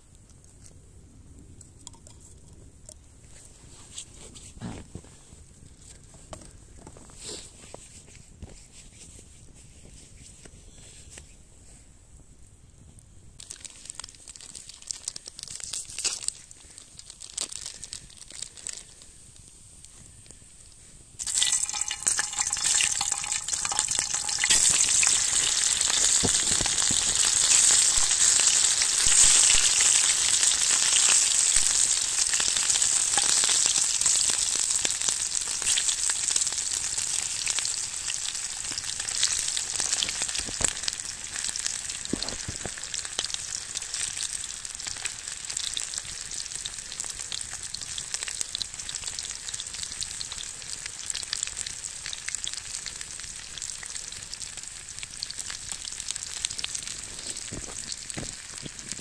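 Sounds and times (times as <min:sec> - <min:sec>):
oil pops and crackles: 0:01.4 - 0:03.1, 0:13.4 - 0:20.4, 0:21.2 - 0:46.7, 0:55.0 - 0:59.0
food sizzling in a hot pan: 0:13.4 - 0:59.0.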